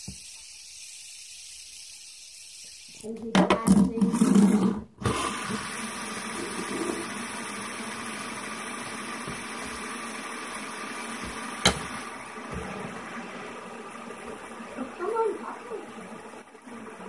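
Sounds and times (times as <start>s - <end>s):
fidget spinner whirring: 0.0s - 3.2s.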